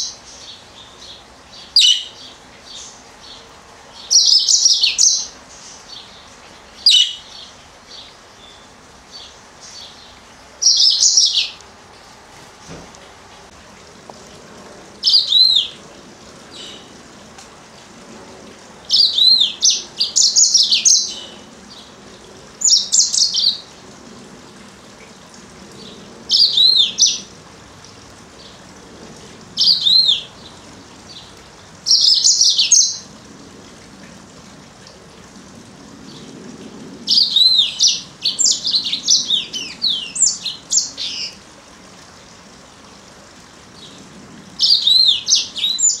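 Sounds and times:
canary singing high chirps: 1.6 - 2.2, 6.9 - 7.4.

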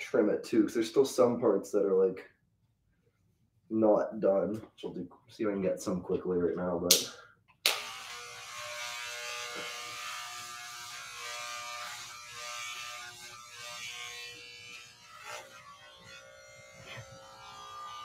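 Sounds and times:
electric hair clippers buzzing: 7.7 - 18.0.

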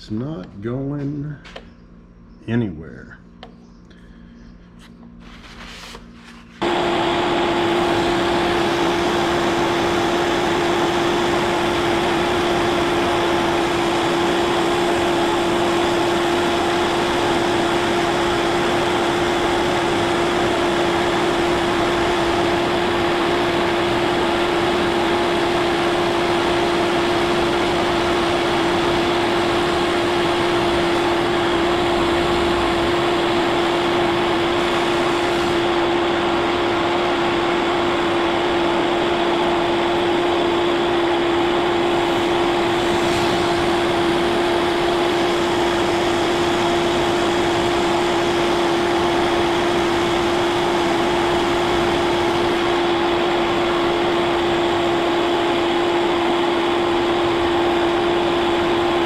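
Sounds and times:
milling machine cutting metal: 41.0 - 55.1.

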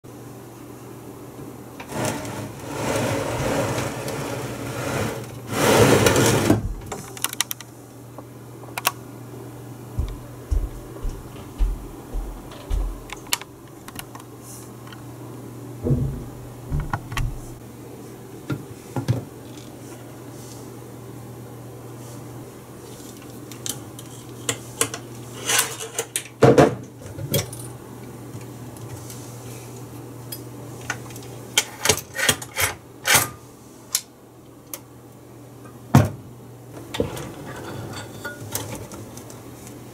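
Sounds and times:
steady low hum: 6.1 - 25.4.

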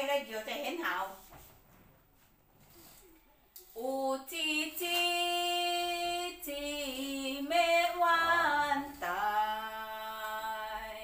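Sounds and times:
woman singing unaccompanied: 3.7 - 11.0.

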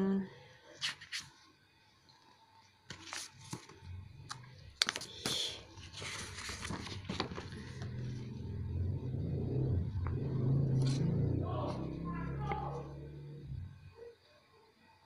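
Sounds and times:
paper rustling and crinkling: 2.9 - 8.2
low hum: 7.5 - 14.1.

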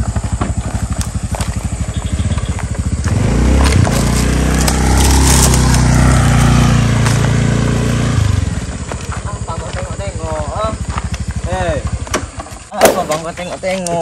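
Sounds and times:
scooter engine: 0.0 - 13.8.

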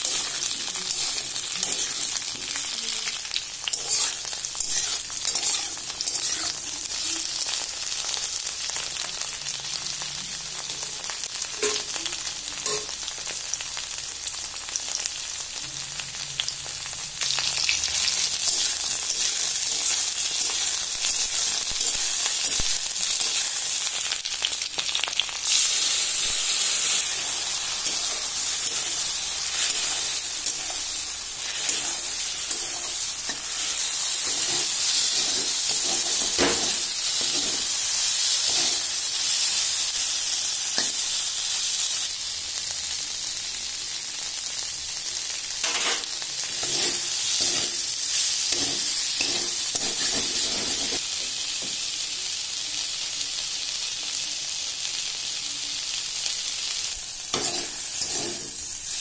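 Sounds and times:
okra sizzling in pan: 0.0 - 59.0
metal spatula scraping pan: 3.7 - 6.6, 26.9 - 37.7, 45.6 - 47.9, 48.5 - 51.0, 57.3 - 58.6.

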